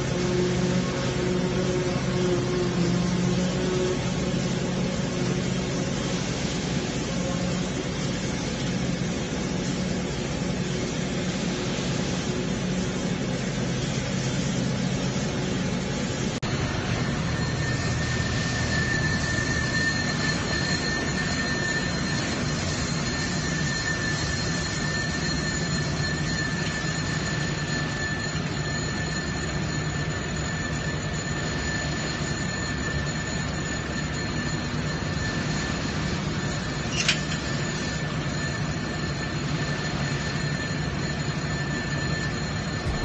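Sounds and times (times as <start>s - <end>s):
high-pitched machinery whine: 0.0s - 43.0s
engine drone: 14.1s - 31.0s, 42.2s - 43.0s.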